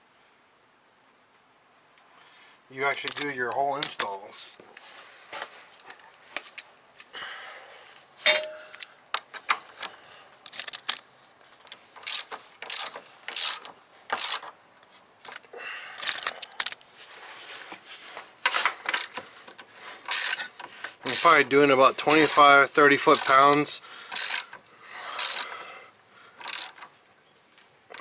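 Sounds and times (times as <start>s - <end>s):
ringing metal clink: 8.2s - 8.9s
ratchet wrench clicking: 10.5s - 11.0s, 12.0s - 14.5s, 16.0s - 16.8s, 18.8s - 19.2s, 20.0s - 24.6s, 25.2s - 25.5s, 26.4s - 26.9s.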